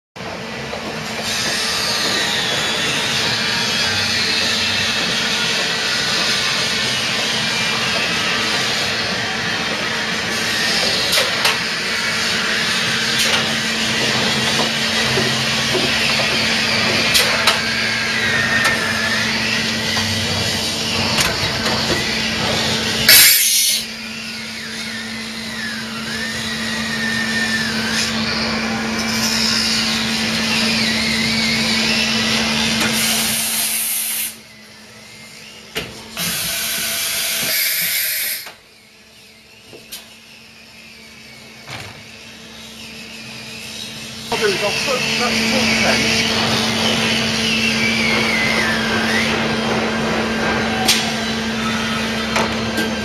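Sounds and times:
machining centre cutting metal: 0.2s - 53.0s
high whine: 38.1s - 53.0s.

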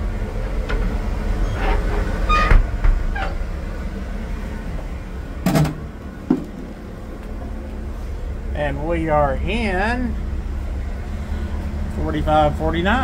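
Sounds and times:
diesel locomotives idling: 0.0s - 13.0s
short squeaks and knocks: 1.4s - 3.5s
loud clunk: 5.4s - 6.7s.

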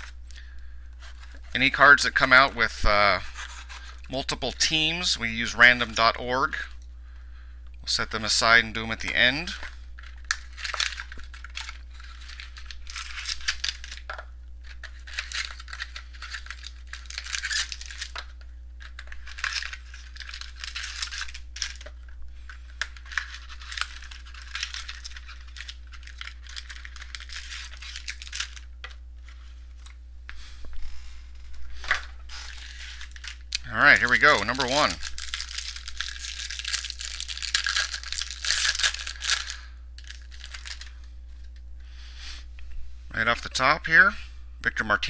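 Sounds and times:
card packaging crinkling: 7.9s - 30.0s, 31.4s - 41.6s.

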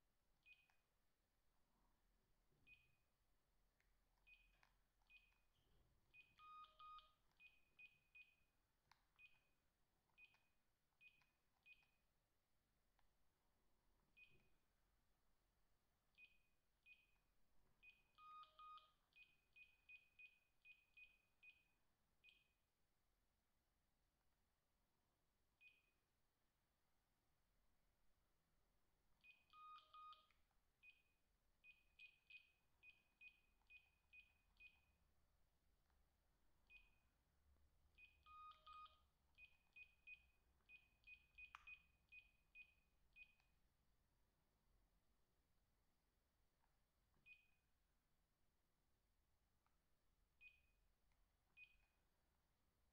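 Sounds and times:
faint keypad beeps: 0.4s - 0.8s, 2.7s - 3.1s, 4.2s - 8.5s, 9.2s - 12.0s, 14.1s - 14.7s, 16.1s - 17.2s, 17.8s - 22.6s, 25.6s - 25.9s, 29.2s - 35.0s, 36.6s - 37.1s, 37.9s - 43.5s, 47.2s - 47.6s, 50.4s - 50.8s, 51.5s - 52.0s.

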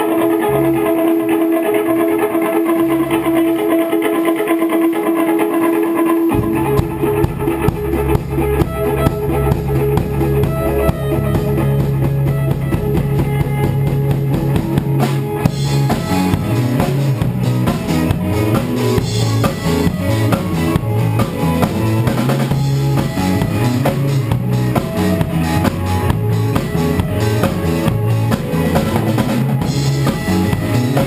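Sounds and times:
bass guitar: 0.0s - 31.0s
guitar playing: 0.0s - 31.0s
drum kit beat: 6.2s - 31.0s.

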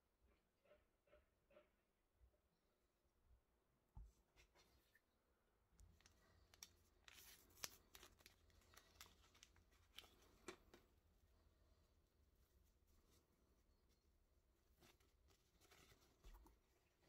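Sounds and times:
paper packet tearing and crinkling: 6.4s - 10.6s.

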